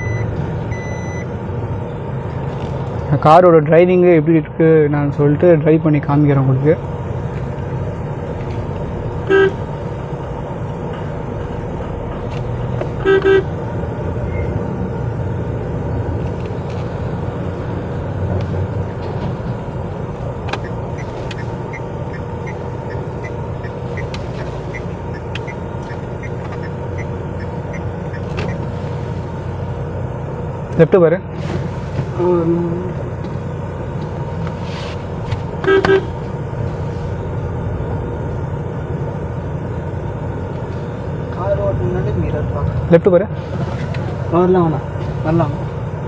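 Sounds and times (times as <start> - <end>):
car engine and road noise: 0.0 - 46.0
car horn honking: 9.2 - 9.8, 12.9 - 13.6, 35.6 - 36.2.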